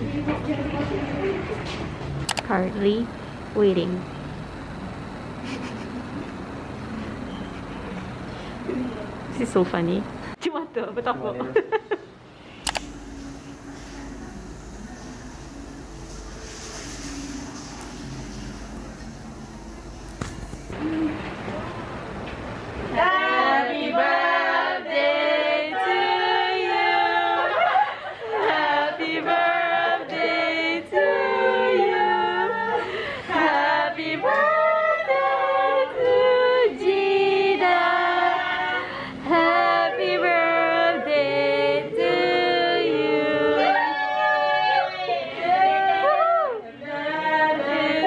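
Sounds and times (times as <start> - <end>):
group of voices singing: 22.9 - 48.0.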